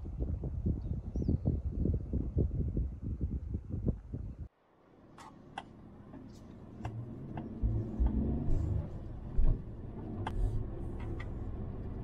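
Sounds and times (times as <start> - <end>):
engine and road rumble: 3.0 - 12.0.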